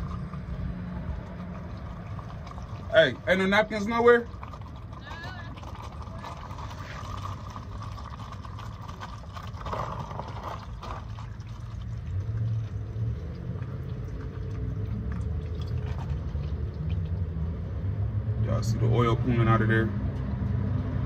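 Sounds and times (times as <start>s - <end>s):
oil draining into a can: 0.0s - 17.5s
low steady rumble: 0.0s - 21.0s.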